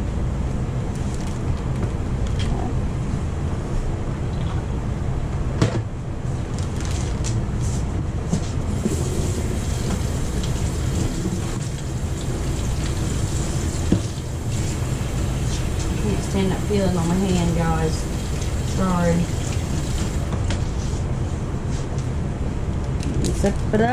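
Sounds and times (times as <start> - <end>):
plastic bag rustling: 6.3 - 7.9
water running into steel sink: 8.7 - 20.4.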